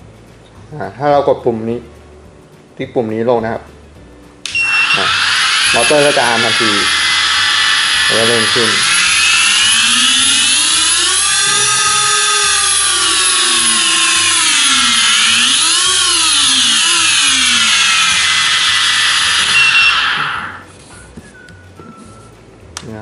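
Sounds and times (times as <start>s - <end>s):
drone motors whining: 4.5s - 20.7s.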